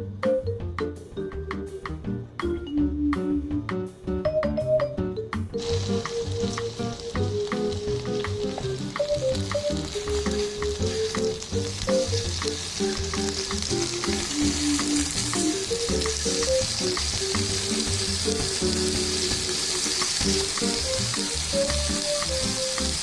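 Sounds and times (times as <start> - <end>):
light background music: 0.0 - 23.0
fish sizzling in oil: 5.6 - 23.0.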